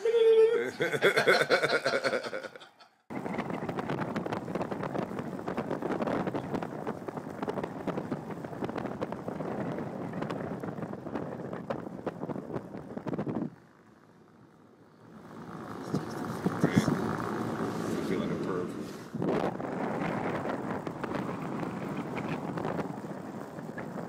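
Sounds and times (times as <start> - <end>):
people laughing: 0.0 - 3.0
tyres and wind rushing in car: 3.1 - 24.0.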